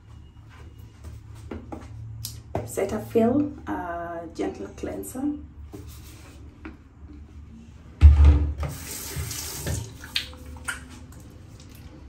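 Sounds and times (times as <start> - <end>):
sudden thump: 8.0 - 8.6
sink tap running: 8.6 - 10.2.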